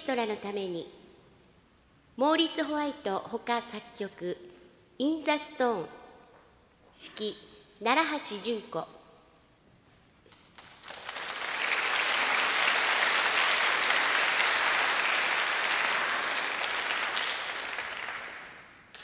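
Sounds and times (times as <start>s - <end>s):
audience applauding: 10.4s - 19.0s.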